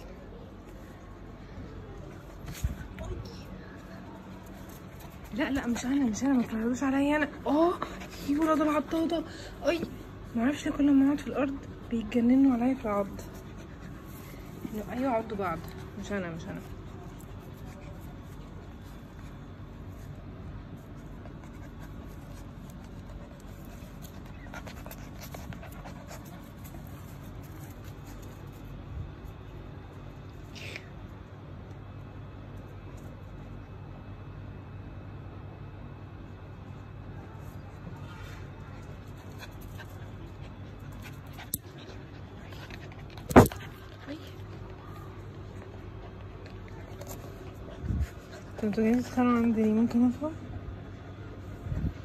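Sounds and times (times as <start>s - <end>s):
puppies scuffling on tiles: 0.5s - 30.4s
puppies breathing and vocalizing: 12.9s - 28.8s, 38.4s - 49.6s.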